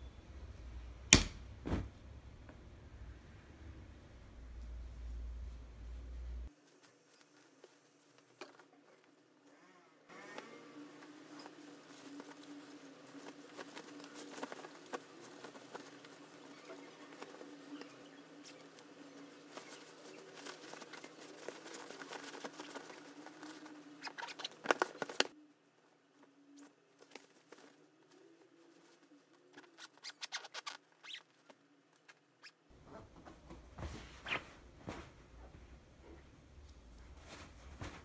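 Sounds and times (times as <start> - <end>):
faint hum: 0.0 - 8.0
fabric rustling: 10.8 - 25.4, 33.2 - 38.0.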